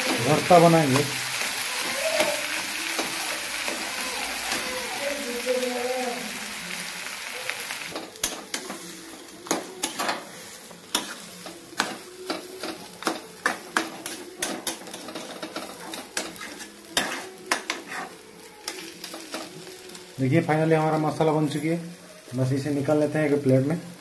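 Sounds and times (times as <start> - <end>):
frying sizzle: 0.0 - 24.0
metal spoon scraping metal pan: 14.1 - 18.2.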